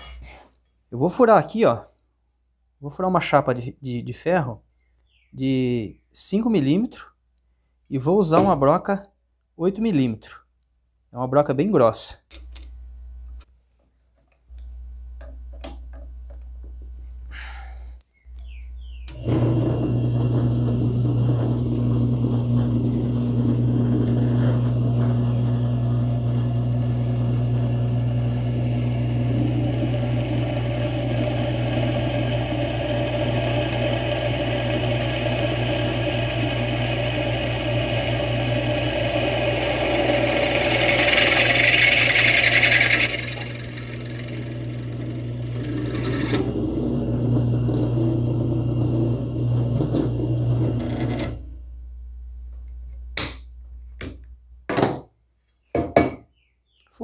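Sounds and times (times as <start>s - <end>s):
drill bit cutting steel: 19.1s - 49.4s
drill press motor humming: 19.1s - 51.4s.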